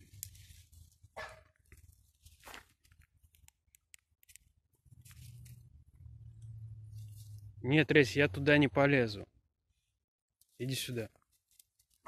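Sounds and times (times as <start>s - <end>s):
dry grass rustling underfoot: 0.0s - 3.3s, 4.3s - 5.8s, 6.9s - 7.5s, 10.4s - 12.0s.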